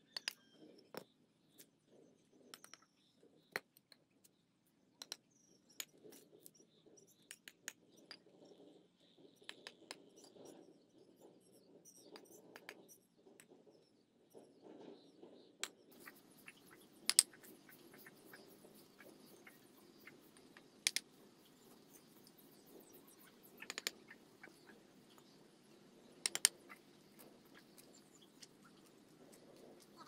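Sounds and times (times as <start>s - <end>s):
faint small ticks: 15.9s - 25.4s
hammer tapping bricks: 17.0s - 18.2s, 20.0s - 21.1s, 23.6s - 24.2s, 26.2s - 26.6s.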